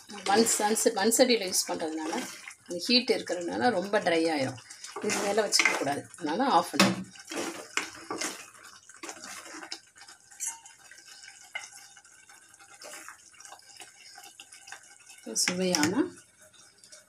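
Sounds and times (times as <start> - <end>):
cooking pot clicks and drips: 6.7 - 12.4.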